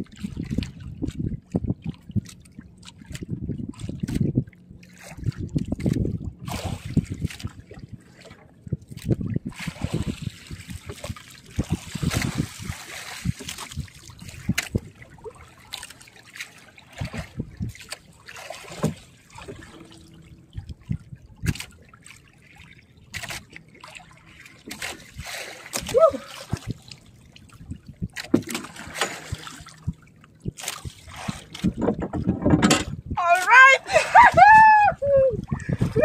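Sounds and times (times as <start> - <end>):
sea water splashing and trickling: 0.0 - 36.0
knocks and thuds: 31.6 - 33.0.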